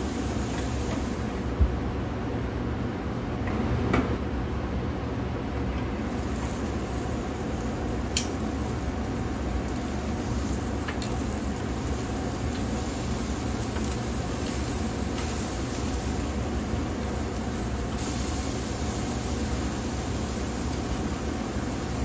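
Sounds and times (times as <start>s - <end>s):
meat sizzling on grill: 0.0s - 1.4s, 6.0s - 22.0s.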